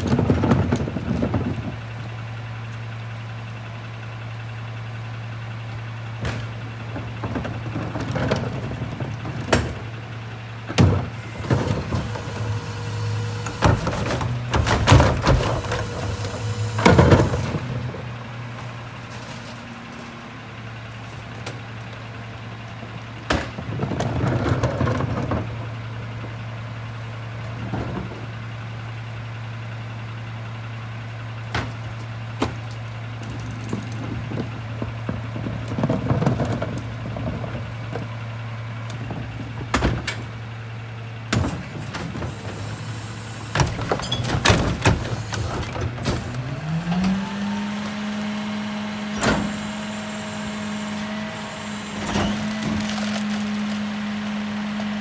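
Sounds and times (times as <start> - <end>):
trash cart knocks and clatter: 0.0 - 2.0, 6.1 - 10.0, 10.6 - 20.2, 22.8 - 26.4, 27.5 - 28.5, 31.4 - 38.3, 38.9 - 40.5, 41.3 - 55.0
garbage truck diesel engine idling: 0.0 - 55.0.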